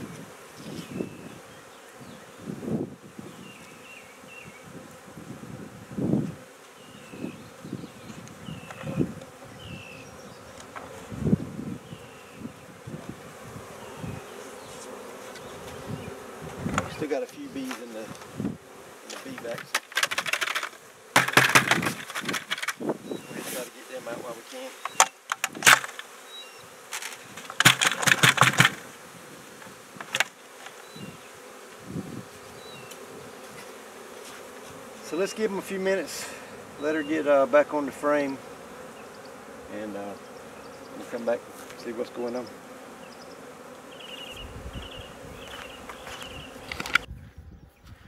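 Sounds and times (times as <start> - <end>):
bees buzzing: 0.0 - 47.2
knocks on plastic bucket: 19.6 - 22.7, 27.4 - 28.8.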